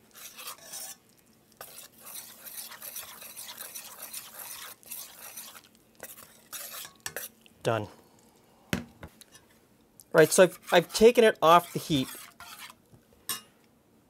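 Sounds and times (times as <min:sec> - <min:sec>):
metal spoon scraping a pan: 0:00.0 - 0:01.0, 0:01.6 - 0:07.4, 0:10.2 - 0:13.5
butter sizzling: 0:00.0 - 0:07.6.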